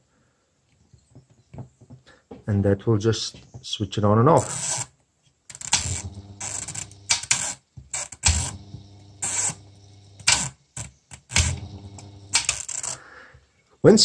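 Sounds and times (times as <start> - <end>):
small motor humming: 5.8 - 7.3, 8.1 - 10.5, 11.3 - 12.6.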